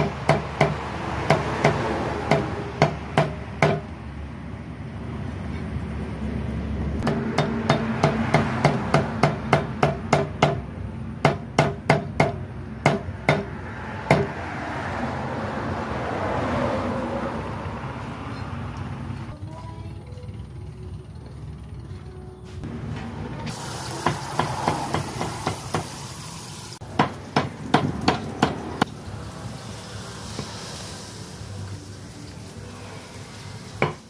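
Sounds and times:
cleaver chopping on wooden block: 11.2s - 13.5s, 14.1s - 14.3s.

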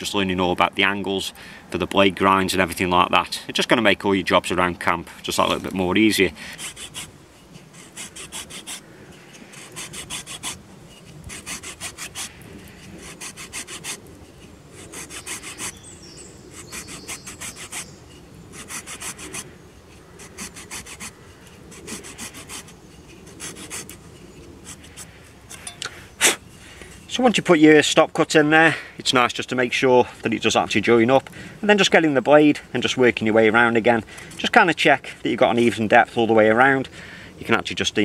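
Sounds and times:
folding saw cutting wood: 6.4s - 15.8s, 16.5s - 27.1s.

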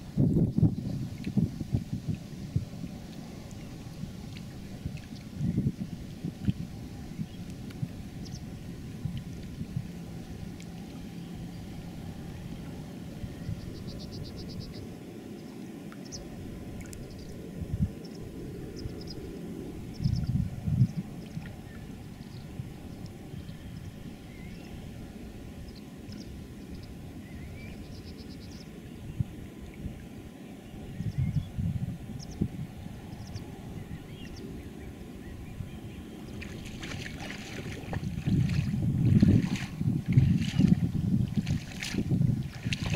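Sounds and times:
wind rumble on microphone: 0.0s - 42.9s
water splashing from wading: 36.2s - 42.9s.

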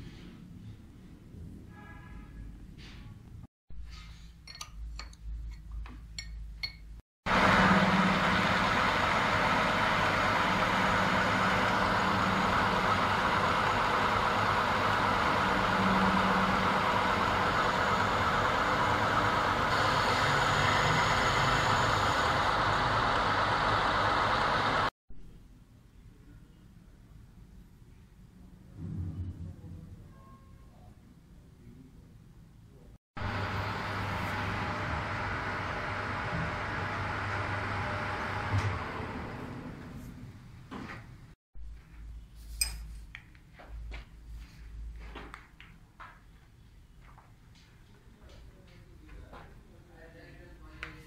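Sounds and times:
metal lathe running: 6.6s - 24.9s.

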